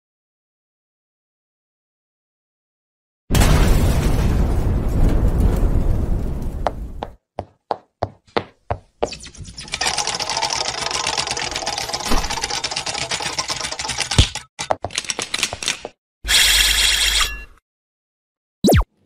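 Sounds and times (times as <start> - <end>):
fast mechanical rattle: 9.6 - 15.8
cartoon blast: 18.6 - 18.9.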